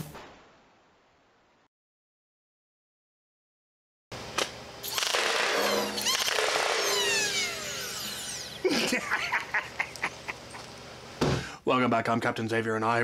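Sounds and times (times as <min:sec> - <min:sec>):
toy blaster darts firing: 0:04.4 - 0:08.6
motors whining down: 0:04.8 - 0:09.0.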